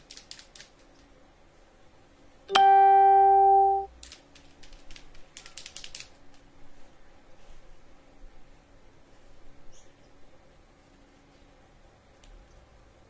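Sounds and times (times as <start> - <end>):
loud steady pitched tone: 2.5 - 3.9.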